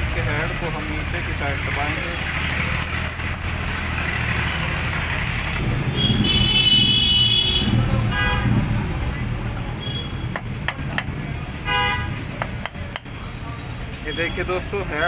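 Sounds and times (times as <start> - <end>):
road traffic rumbling: 0.0 - 15.0
vehicle horn: 5.9 - 8.7, 11.6 - 12.2.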